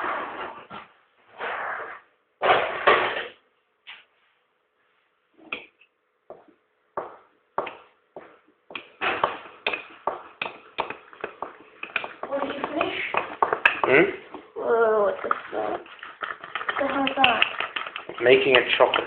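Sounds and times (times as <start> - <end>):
spoon tapping inside a mug: 15.9 - 19.0.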